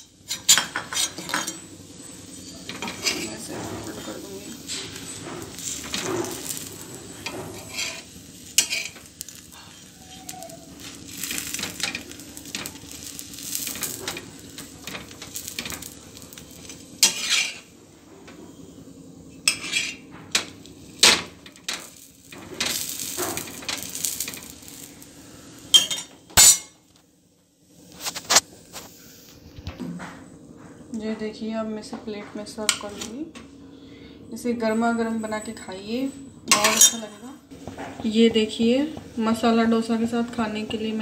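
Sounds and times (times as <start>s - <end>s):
spatula scraping on a griddle: 0.0s - 18.8s, 19.4s - 26.8s, 27.8s - 29.3s, 32.4s - 33.2s, 36.5s - 37.2s
light sizzle: 0.0s - 29.9s, 30.7s - 41.0s.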